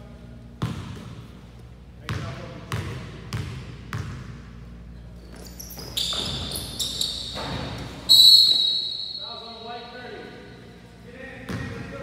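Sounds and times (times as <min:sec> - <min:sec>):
sneaker squeaks on court: 0:04.9 - 0:09.7.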